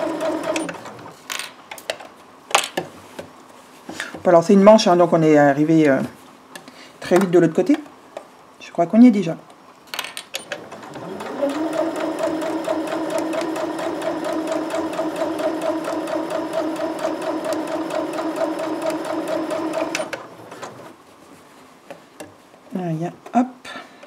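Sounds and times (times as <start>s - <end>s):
sewing machine stitching: 0.0s - 1.0s, 10.4s - 20.9s.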